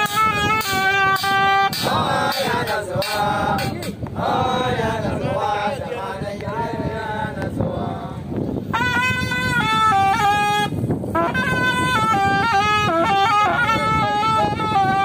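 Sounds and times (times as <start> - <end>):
held note: 0.0 - 3.9
hand drums beat: 0.0 - 4.0
men chanting: 1.7 - 8.4.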